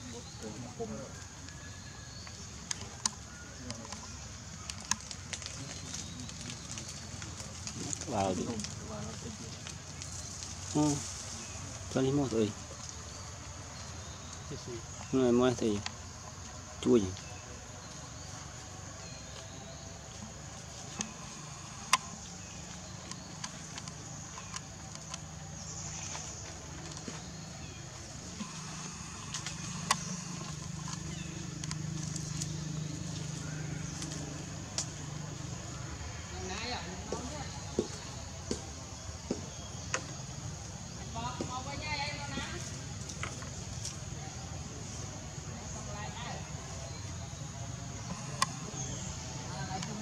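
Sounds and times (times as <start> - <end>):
sharp clicks: 20.9 - 25.4, 28.4 - 32.5, 48.0 - 48.8.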